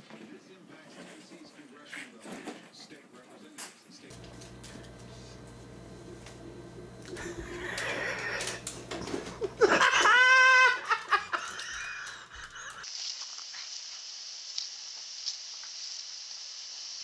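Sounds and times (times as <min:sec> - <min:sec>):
faint hiss: 0:12.8 - 0:17.0.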